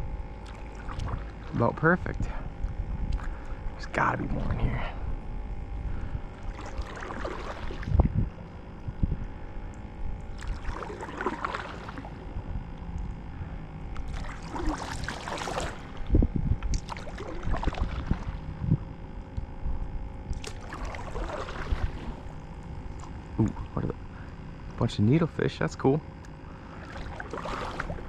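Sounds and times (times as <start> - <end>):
water swishing by kayak: 0.4 - 5.2, 5.8 - 24.8, 26.1 - 28.0.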